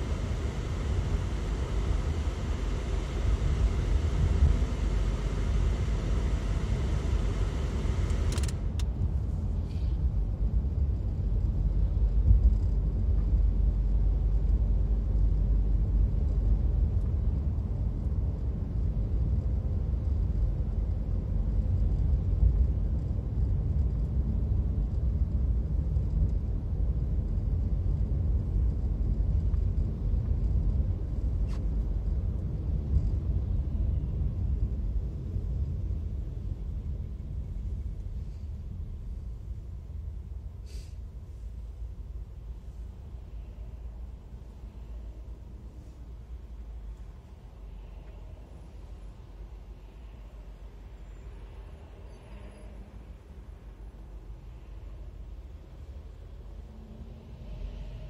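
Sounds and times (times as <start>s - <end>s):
car road and engine rumble: 0.0s - 58.0s
click: 8.0s - 8.9s.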